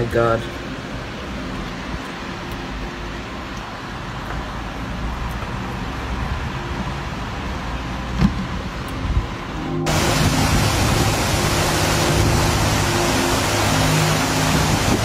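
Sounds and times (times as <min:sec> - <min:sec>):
wind rushing through trees: 0:08.7 - 0:15.0.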